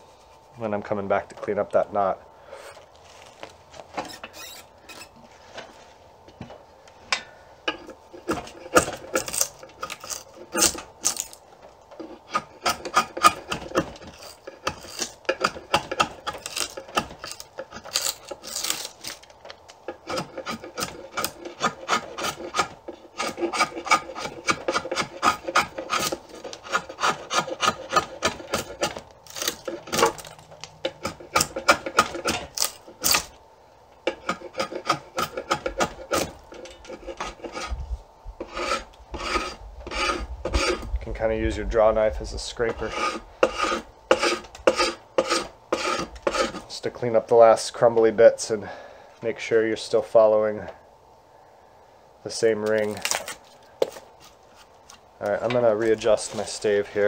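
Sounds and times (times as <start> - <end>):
draw knife shaving wood: 4.0 - 5.1, 8.1 - 11.4, 12.0 - 33.3, 34.1 - 37.8, 38.4 - 40.9, 42.6 - 46.7.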